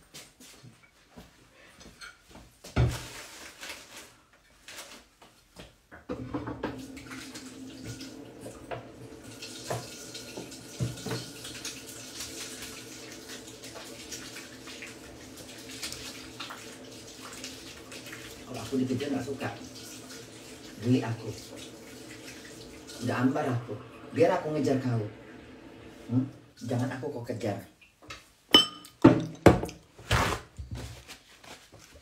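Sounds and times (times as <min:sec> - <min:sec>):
tap water running: 0:06.0 - 0:30.4.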